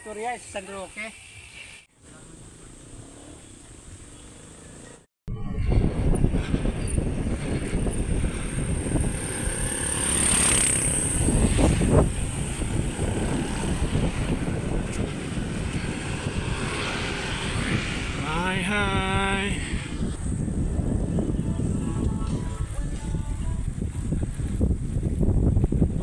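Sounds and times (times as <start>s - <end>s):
wind buffeting microphone: 5.3s - 26.0s.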